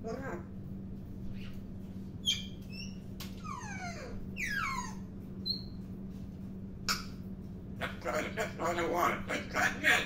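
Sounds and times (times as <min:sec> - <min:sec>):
parrot whistling and squeaking: 0:02.2 - 0:05.8.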